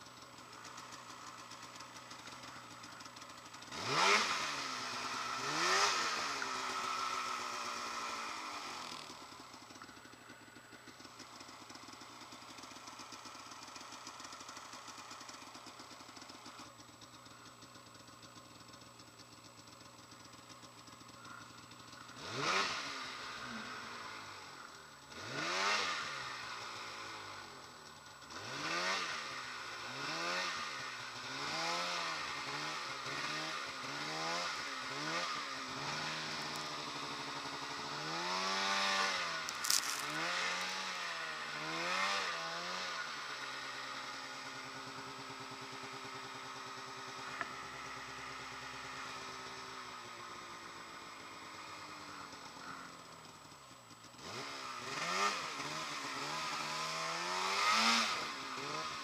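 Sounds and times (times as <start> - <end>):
snowmobile engine revving: 2.9 - 9.2, 21.3 - 27.4, 28.2 - 43.8, 54.1 - 59.0.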